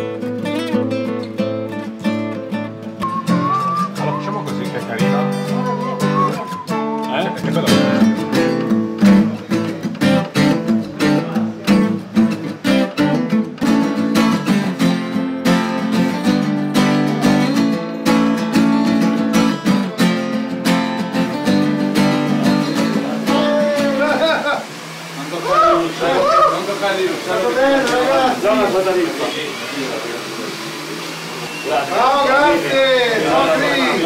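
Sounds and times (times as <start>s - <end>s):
acoustic guitars strumming: 0.0s - 26.6s.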